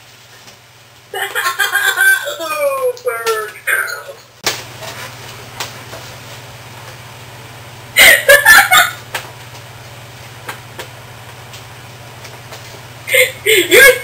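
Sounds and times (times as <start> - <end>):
low electrical hum: 0.0 - 14.0
man laughing: 1.2 - 2.5, 8.0 - 9.0, 13.1 - 14.0.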